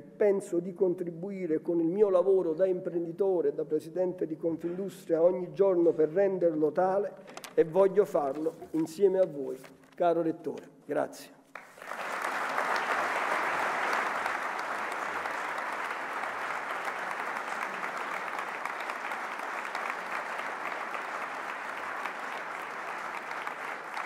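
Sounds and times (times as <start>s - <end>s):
audience applauding: 11.5s - 24.0s.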